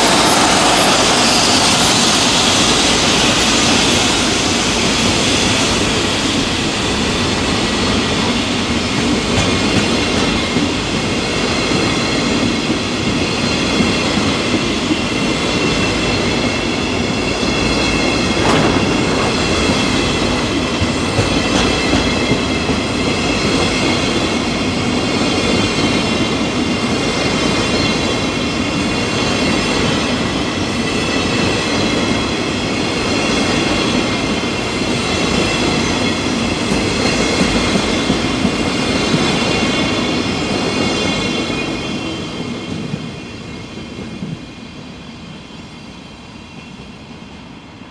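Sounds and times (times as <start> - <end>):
high ringing whine: 0.0 - 8.0
train wheels rumbling on rail: 0.0 - 47.9.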